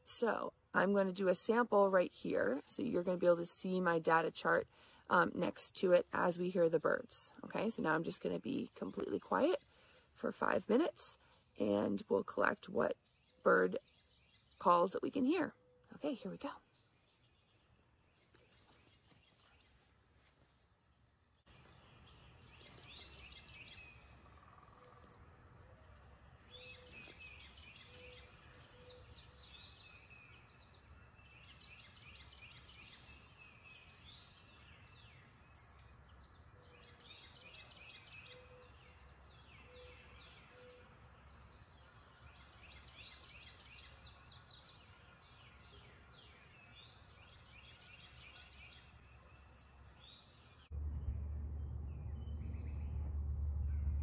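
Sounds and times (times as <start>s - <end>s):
songbirds chorus: 0.2s - 54.0s
bird trilled song: 21.4s - 54.0s
loud low rumble: 50.7s - 54.0s.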